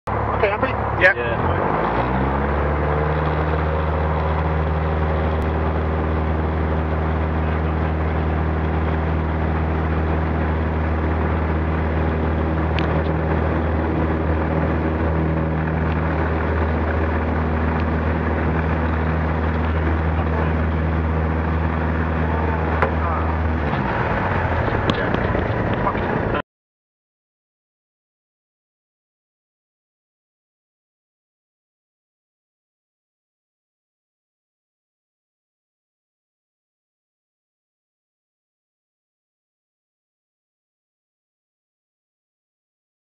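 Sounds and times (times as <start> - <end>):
light aircraft engine and propeller: 0.1 - 26.4.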